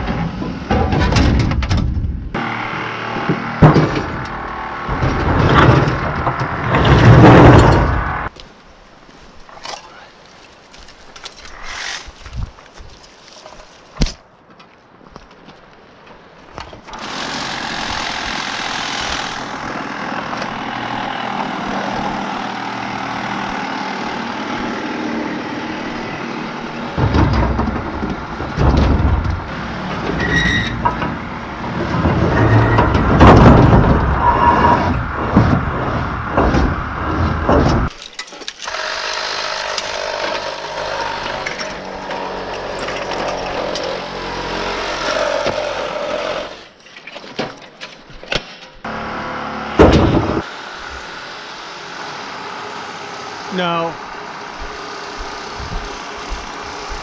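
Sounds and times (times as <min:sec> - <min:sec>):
power tool cutting steel: 0:17.0 - 0:26.0, 0:38.6 - 0:46.8
metal knocking and rattling: 0:26.9 - 0:34.3.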